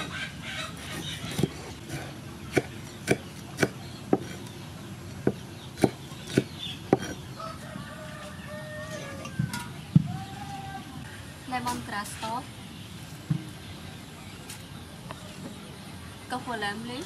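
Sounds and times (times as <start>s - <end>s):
knife chopping on wooden board: 1.3s - 4.4s, 5.2s - 7.2s.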